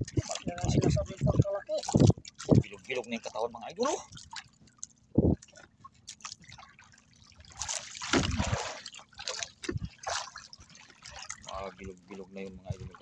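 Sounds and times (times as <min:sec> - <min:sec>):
water dripping and sloshing: 0:00.0 - 0:13.0
water splashing: 0:00.0 - 0:13.0.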